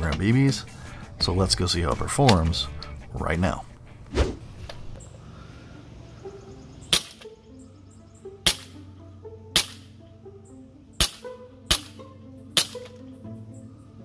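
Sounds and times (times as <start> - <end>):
airsoft pistol shots: 6.9 - 7.3, 8.4 - 8.8, 9.6 - 9.8, 11.0 - 12.0, 12.6 - 13.0.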